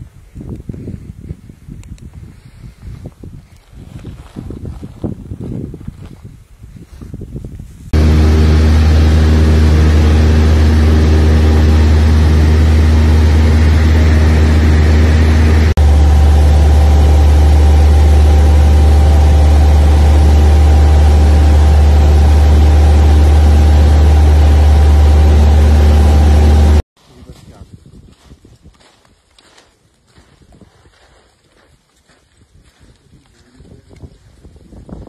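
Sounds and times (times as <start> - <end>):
aircraft engine drone: 8.0 - 26.8.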